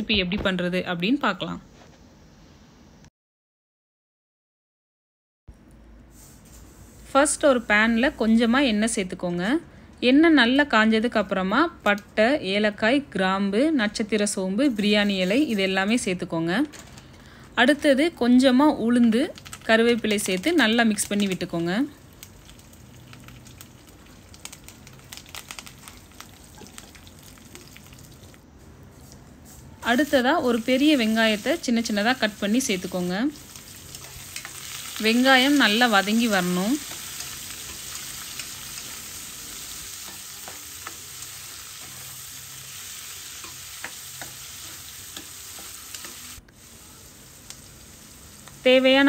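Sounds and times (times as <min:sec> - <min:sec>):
spices sizzling in oil: 0:14.6 - 0:16.2, 0:18.9 - 0:49.0.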